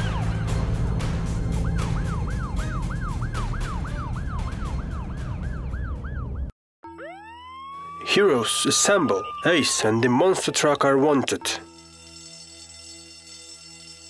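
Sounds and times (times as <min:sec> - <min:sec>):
police siren yelp: 0:01.6 - 0:11.7.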